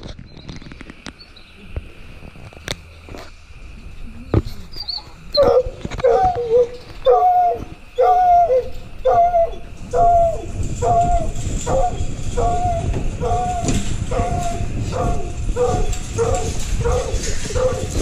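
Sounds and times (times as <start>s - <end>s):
dog barking: 5.4s - 7.2s, 10.8s - 18.0s.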